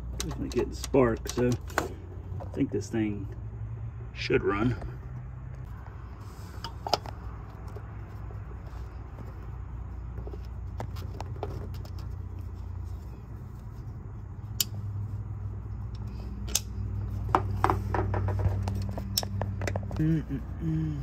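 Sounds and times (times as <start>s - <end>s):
sharp clicks and metallic rattles: 0.0s - 3.4s, 15.8s - 20.0s
steady low hum: 0.0s - 21.0s.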